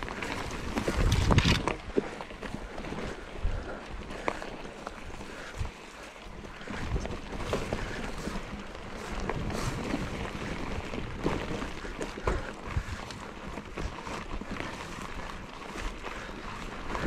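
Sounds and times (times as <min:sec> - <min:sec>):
wind on microphone: 0:00.0 - 0:02.0, 0:06.4 - 0:15.2
bike knocks and rattles: 0:00.0 - 0:15.8
bike tyres rolling on trail: 0:00.0 - 0:17.0.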